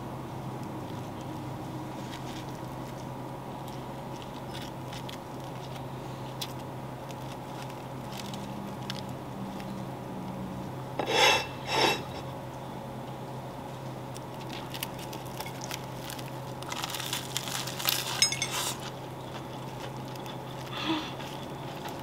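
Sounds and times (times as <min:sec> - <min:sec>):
light crackles and ticks of food: 0:00.5 - 0:10.8, 0:12.4 - 0:18.2, 0:18.8 - 0:22.0
ceramic plate scraping on wood: 0:11.0 - 0:12.2.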